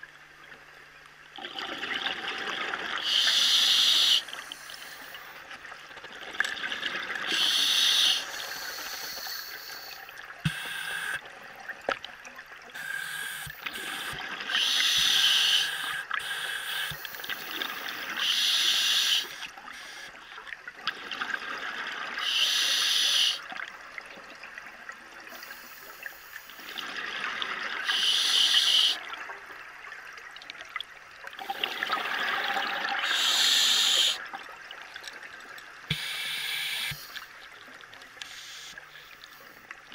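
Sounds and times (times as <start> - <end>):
breathing through a regulator: 3.0 - 5.5, 7.2 - 11.2, 12.8 - 20.2, 22.2 - 23.5, 25.3 - 27.0, 27.7 - 29.1, 31.4 - 34.3, 35.9 - 37.4, 38.2 - 39.6.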